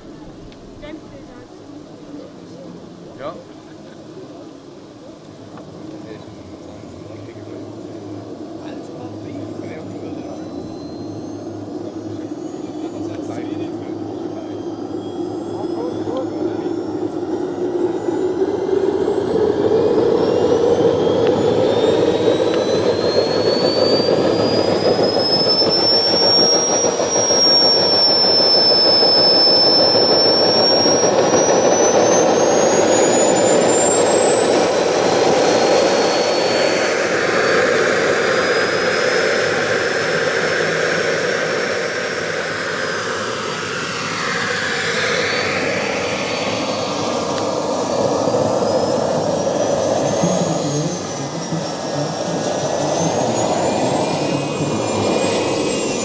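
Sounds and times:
model turbine whine: 0.0 - 56.0
turbine and propeller rushing: 0.0 - 56.0.

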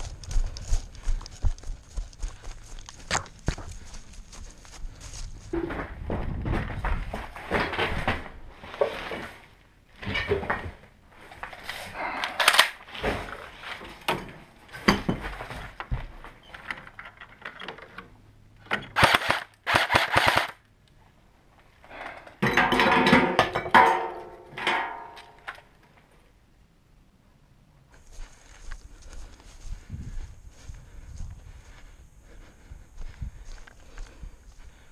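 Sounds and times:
airsoft gun shots: 19.0 - 20.6.

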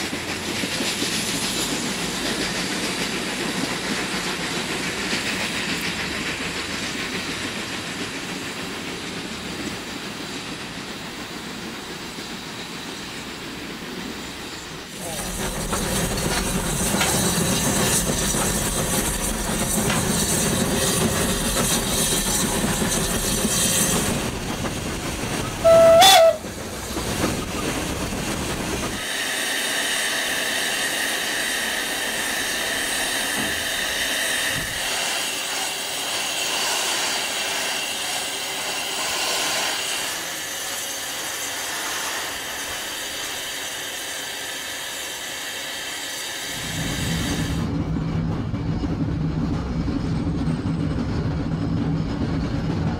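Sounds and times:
steam hissing: 0.0 - 47.7
locomotive working noise: 0.0 - 52.9
steam whistle blast: 25.6 - 26.4.

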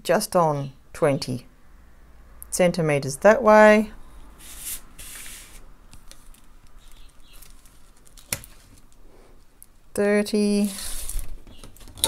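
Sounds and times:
plastic-covered canvas crinkling: 6.1 - 9.0.

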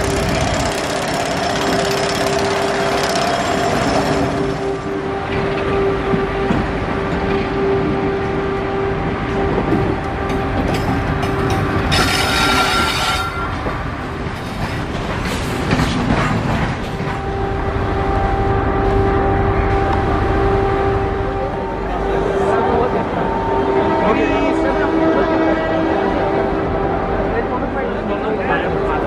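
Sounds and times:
train horn: 0.0 - 13.7, 17.0 - 29.0
electric locomotive blower whine: 0.0 - 14.0.

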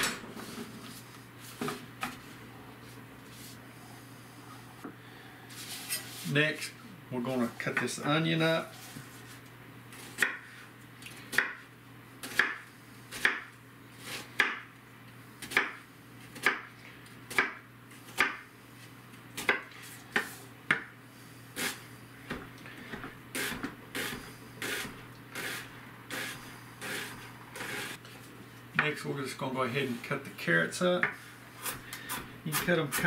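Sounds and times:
knife chopping on cutting board: 12.2 - 13.5.

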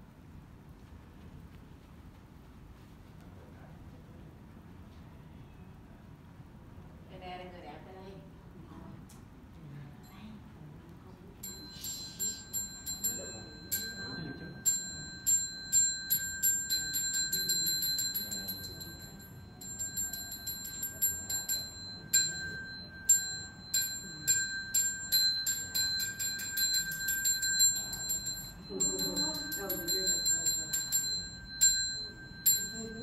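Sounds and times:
temple bell ringing: 11.4 - 33.0.

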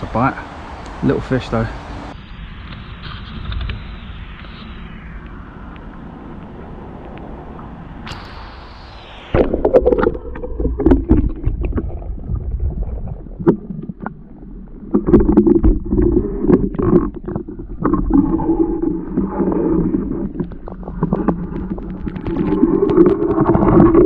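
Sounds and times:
open-air hiss: 0.0 - 10.3
muffled underwater rumble: 2.2 - 24.0
underwater gurgling: 9.3 - 24.0.

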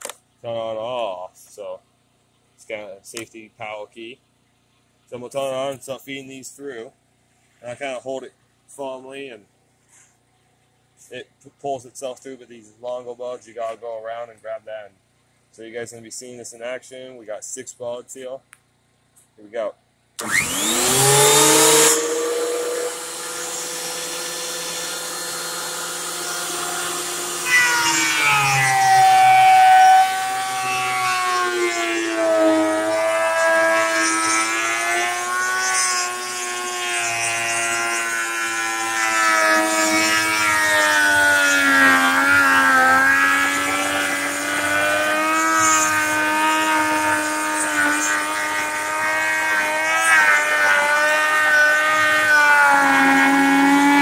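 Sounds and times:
planer cutting board: 20.2 - 54.0
thickness planer running: 20.2 - 54.0.

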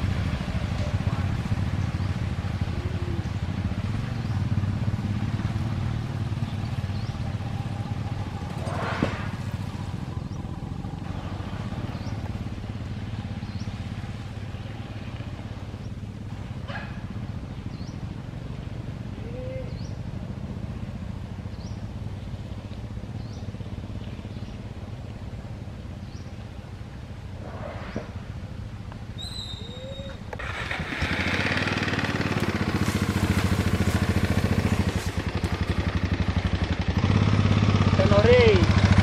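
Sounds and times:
small motorbike engine: 0.0 - 24.6, 29.8 - 39.0
bird chirping: 29.2 - 30.3.

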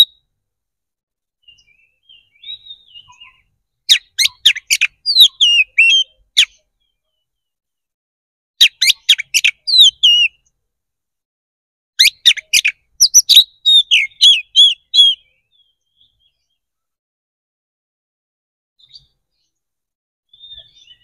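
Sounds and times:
bird singing chips and whistles: 0.0 - 0.2, 1.4 - 6.7, 8.6 - 10.4, 12.0 - 16.4, 20.3 - 21.0.

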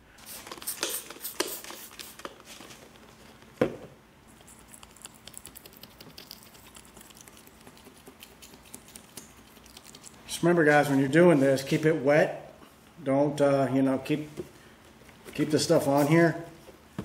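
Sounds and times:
spray bottle squirting: 0.3 - 2.4.

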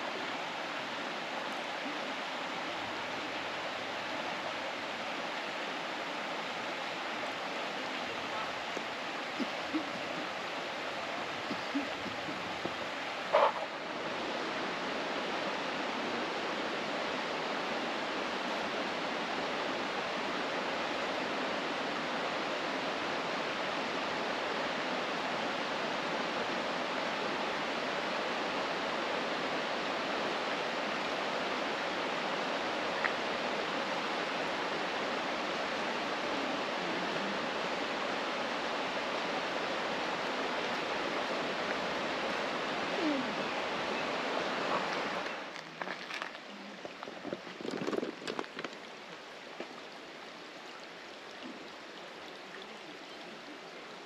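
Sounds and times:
river water rushing over rocks: 0.0 - 54.0.

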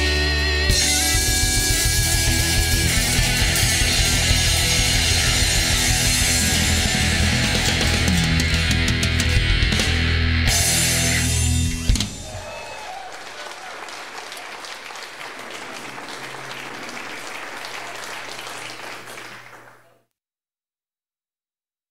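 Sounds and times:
rock band chord: 0.0 - 12.2
audience applauding: 11.8 - 20.0
voices calling out: 12.0 - 19.7.

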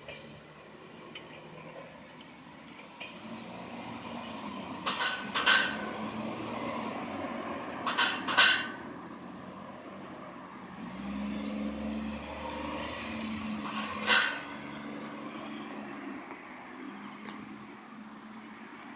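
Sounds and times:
car engine and tyres: 0.0 - 18.9
car wheels thumping over rails: 4.7 - 9.0, 13.4 - 14.8.

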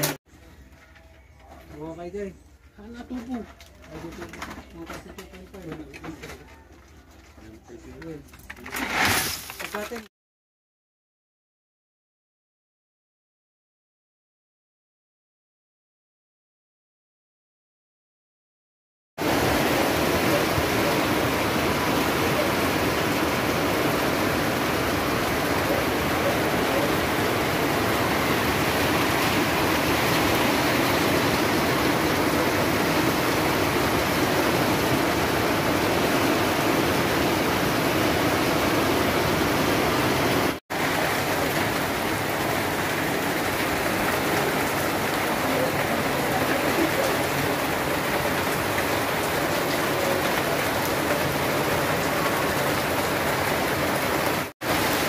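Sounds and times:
heavy rain pouring: 19.2 - 55.0.

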